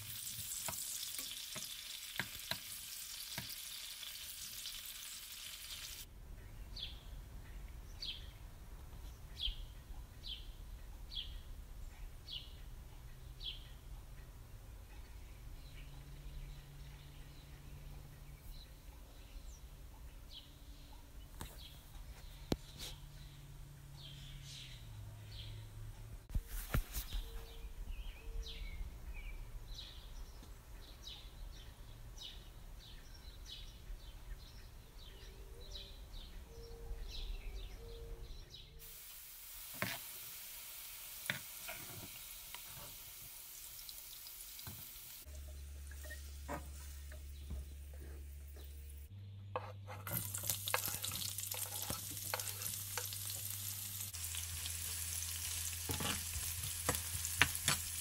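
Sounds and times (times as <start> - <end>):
vegetables sizzling in oil: 0.0 - 6.1, 38.8 - 47.2, 50.0 - 58.0.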